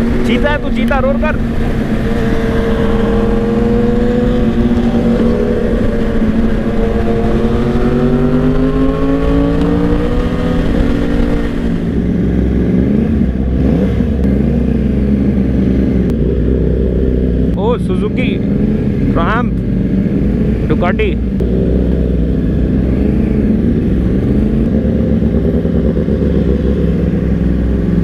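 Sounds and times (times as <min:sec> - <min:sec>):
wind rush: 0:00.0 - 0:16.0
motorcycle engine at speed: 0:00.0 - 0:28.0
motorcycle engine riding slowly: 0:00.0 - 0:28.0.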